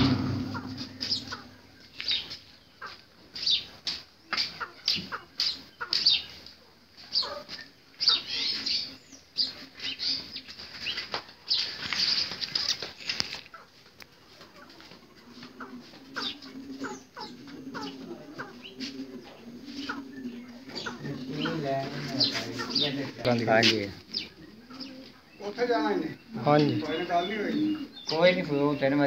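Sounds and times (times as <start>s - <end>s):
birds chirping: 0.0s - 29.0s
wings fluttering: 14.3s - 23.2s.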